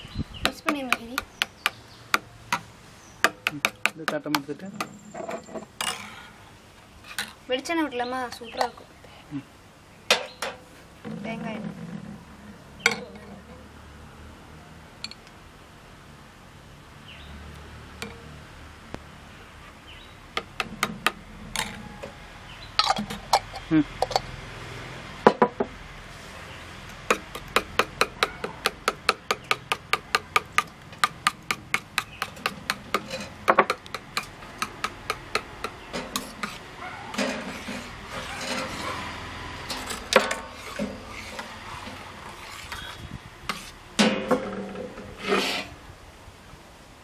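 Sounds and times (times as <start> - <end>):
spoon stirring and scraping: 31.3 - 43.8.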